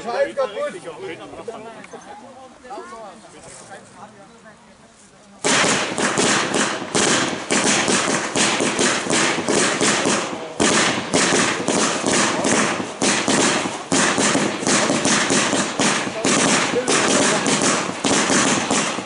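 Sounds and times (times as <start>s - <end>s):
firecracker bangs: 5.4s - 19.0s.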